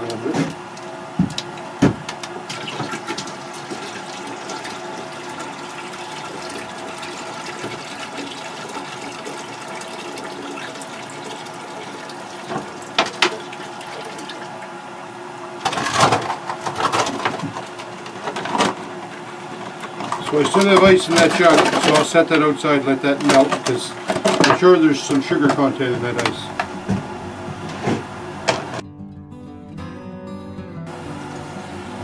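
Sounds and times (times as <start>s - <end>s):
liquid pouring into metal bucket: 2.6s - 14.5s.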